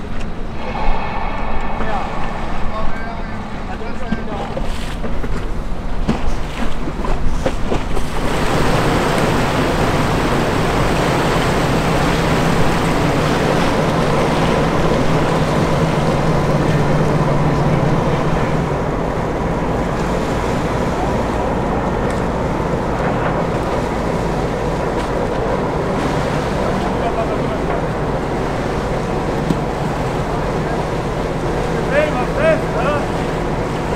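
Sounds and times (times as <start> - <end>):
wind on microphone: 0.0 - 5.9
boat engine humming: 2.4 - 33.9
rushing water: 6.3 - 33.9.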